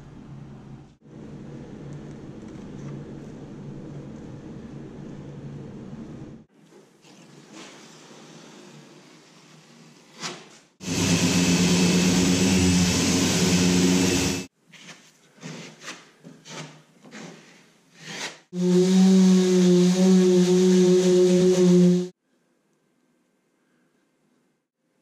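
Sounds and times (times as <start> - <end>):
loud power tool running: 10.8 - 14.5
sander humming: 10.8 - 14.5, 18.6 - 22.1.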